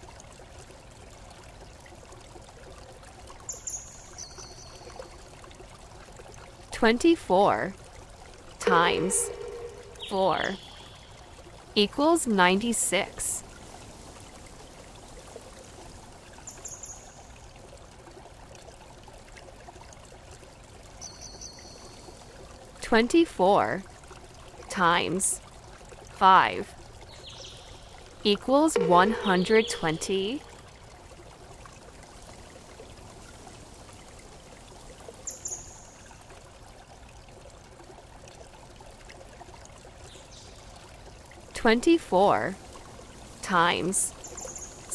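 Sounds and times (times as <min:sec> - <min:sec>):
faint water trickling: 0:00.0 - 0:44.9
high-pitched chirp: 0:08.6 - 0:10.9.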